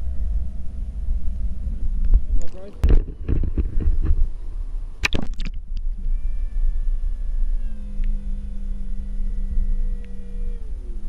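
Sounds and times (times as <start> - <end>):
low underwater rumble: 0.0 - 11.0
pump motor humming whine: 5.6 - 11.0.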